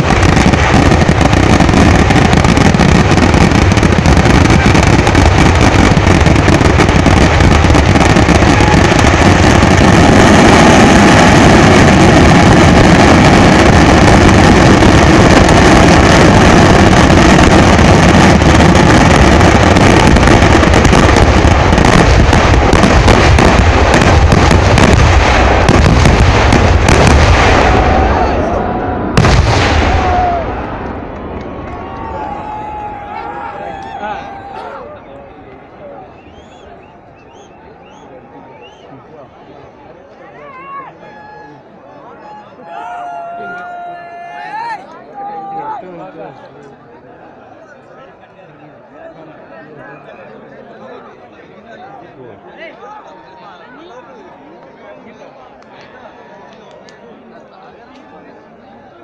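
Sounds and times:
fireworks blasts: 0.0 - 34.5.

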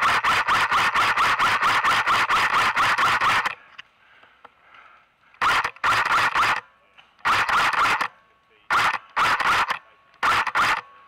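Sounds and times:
airsoft rifle firing rapid shots: 0.0 - 3.6, 5.4 - 6.6, 7.2 - 8.1, 8.7 - 10.9.

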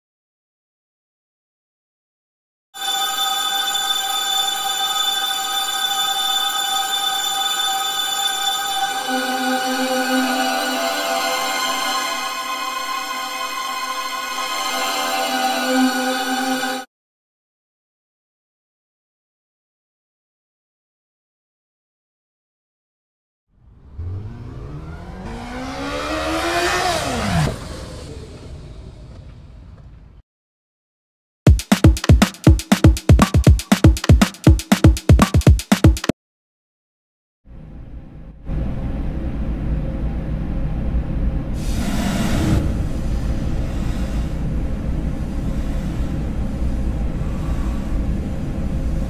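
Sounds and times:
car driving past: 23.6 - 30.1.

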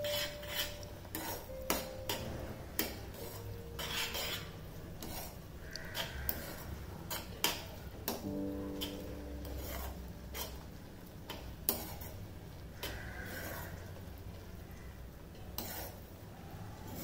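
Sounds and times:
spoon clinking against pan: 0.0 - 2.2
spoon scraping metal pan: 0.0 - 8.2, 8.8 - 10.7, 11.3 - 12.2, 15.4 - 16.2.

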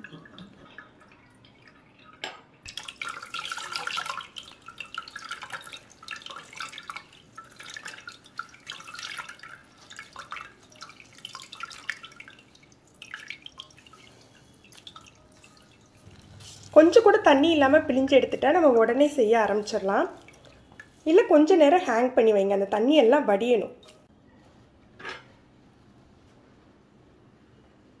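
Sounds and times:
water dripping and trickling: 0.0 - 21.1.

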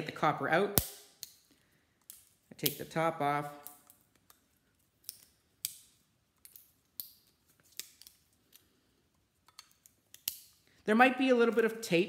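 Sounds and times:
pliers snipping and clicking: 0.8 - 1.4, 9.4 - 10.6.

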